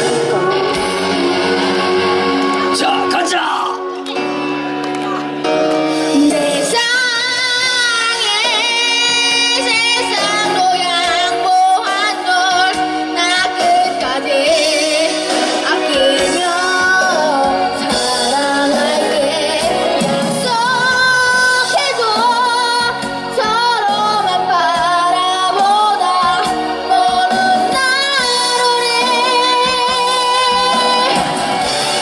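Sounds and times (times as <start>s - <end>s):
backing track through speakers: 0.0s - 32.0s
child singing into microphone: 6.1s - 31.2s.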